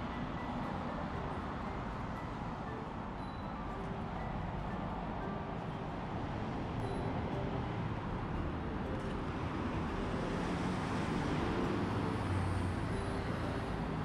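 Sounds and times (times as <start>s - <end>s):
street traffic: 0.0s - 14.0s.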